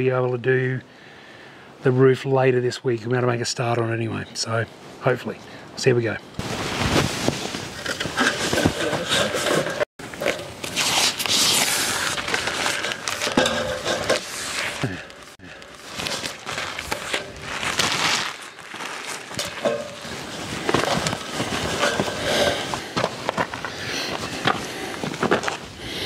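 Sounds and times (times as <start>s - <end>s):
thin sheet crinkling: 6.4s - 25.7s.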